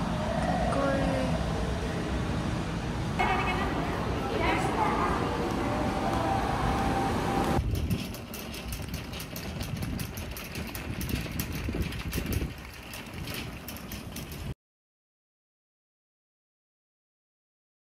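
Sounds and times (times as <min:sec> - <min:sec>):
noisy background: 0:00.0 - 0:14.6
shopping cart basket rattling: 0:07.6 - 0:14.6.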